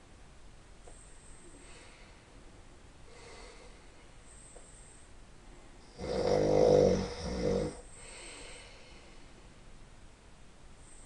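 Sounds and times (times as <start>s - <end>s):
quiet breathing: 0.9s - 9.8s
man snoring: 6.0s - 7.9s.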